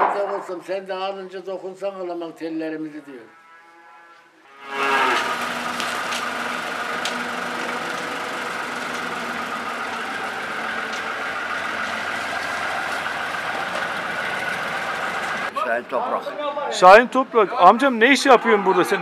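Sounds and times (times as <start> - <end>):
tractor diesel engine idling: 5.2 - 15.5.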